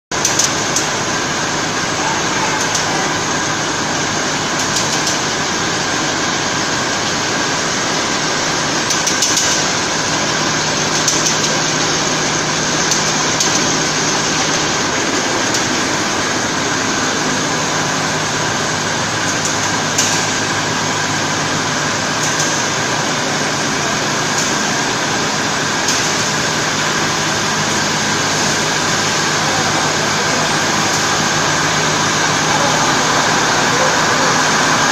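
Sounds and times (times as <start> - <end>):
machine whirring: 0.1 - 34.9.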